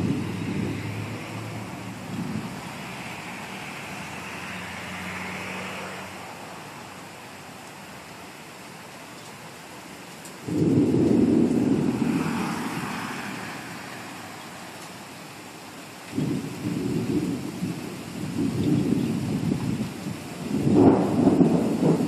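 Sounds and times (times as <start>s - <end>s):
thunderclap rumbling: 0.0s - 4.0s, 10.4s - 14.0s, 16.1s - 22.0s
rain hissing: 0.0s - 22.0s.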